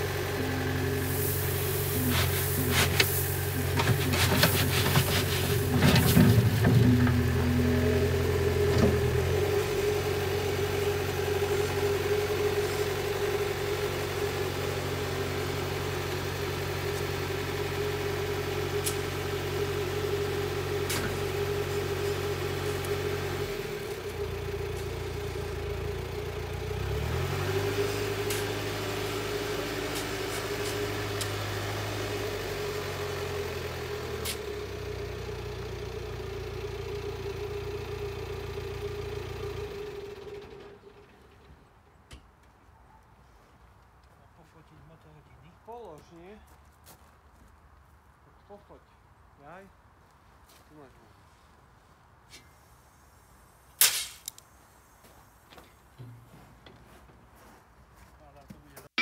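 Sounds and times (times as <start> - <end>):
steady whine: 0.0 - 15.4
diesel engine running: 0.0 - 42.0.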